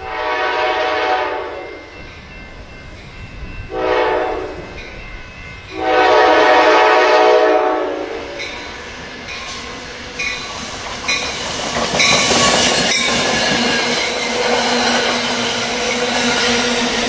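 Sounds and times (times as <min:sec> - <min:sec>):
locomotive air horn blasts: 0:00.0 - 0:01.8, 0:03.7 - 0:04.7, 0:05.7 - 0:08.4
train rumble: 0:00.0 - 0:17.0.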